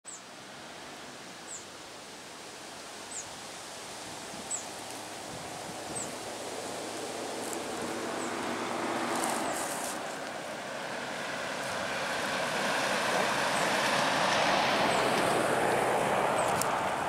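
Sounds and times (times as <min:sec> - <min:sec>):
vehicle passing at speed: 0:05.5 - 0:17.0.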